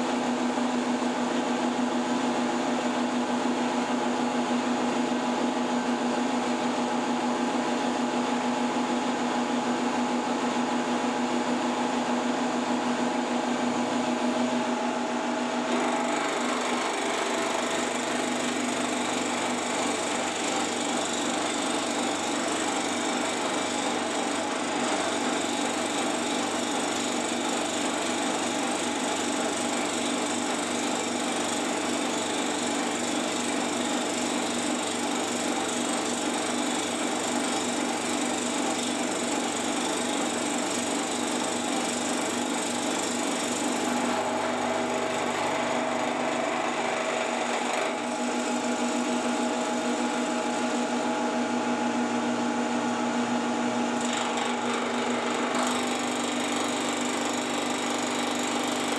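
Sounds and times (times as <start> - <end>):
spindle motor hum: 13.7 - 30.6, 44.0 - 56.6
milling cutter grinding metal: 15.6 - 51.6, 53.7 - 58.9.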